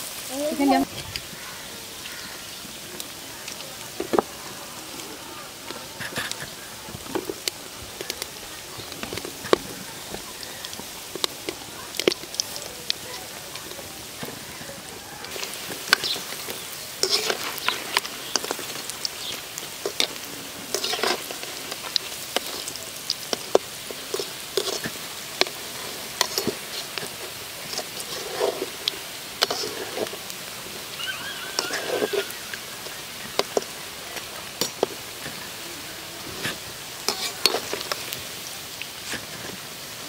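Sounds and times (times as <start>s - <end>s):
oil sizzling: 0.0s - 40.0s
metal spoon scraping pan: 15.2s - 35.4s, 36.3s - 38.2s.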